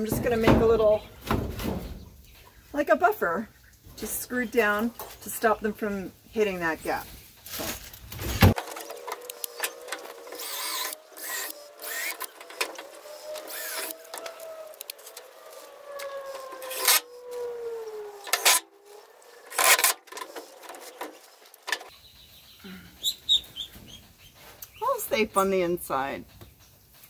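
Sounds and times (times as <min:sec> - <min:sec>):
cordless drill driving screws: 0:08.6 - 0:15.3, 0:16.4 - 0:17.1, 0:18.2 - 0:18.6, 0:19.4 - 0:20.7.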